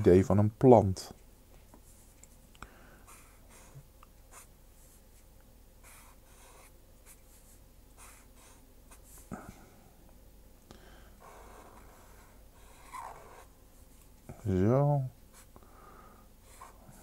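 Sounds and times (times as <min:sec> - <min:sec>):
pen scratching on paper: 0:05.8 - 0:09.2, 0:11.2 - 0:13.5.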